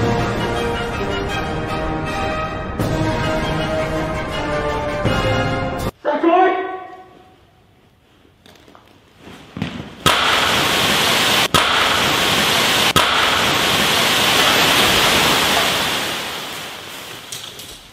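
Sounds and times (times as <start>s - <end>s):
hiss of spraying sparks: 10.1s - 17.9s
shovel striking molten iron: 11.5s - 14.6s.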